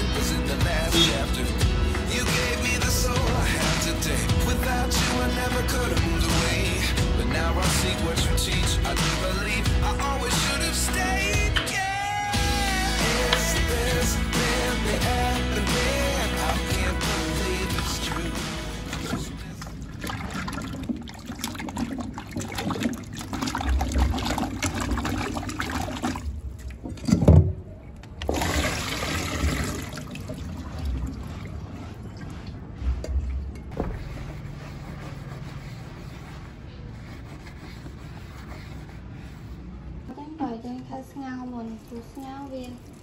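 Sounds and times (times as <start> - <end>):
water gushing into sink: 17.8 - 27.4, 28.2 - 33.5
water sloshing in a metal pot: 18.9 - 33.8, 41.5 - 43.0.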